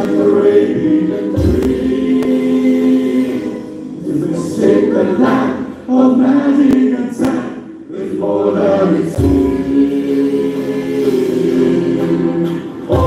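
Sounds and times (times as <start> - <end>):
guitar and keyboard band: 0.0 - 7.6
choir singing through microphones: 0.0 - 13.0.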